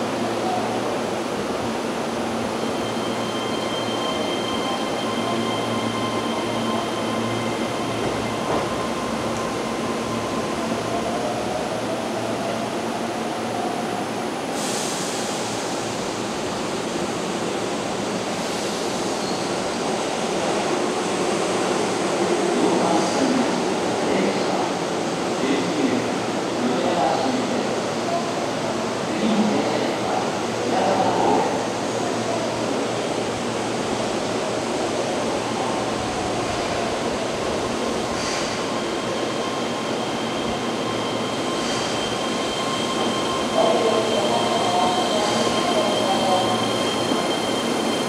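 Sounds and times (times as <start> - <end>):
electric train approaching: 1.2 - 13.9, 29.9 - 48.0.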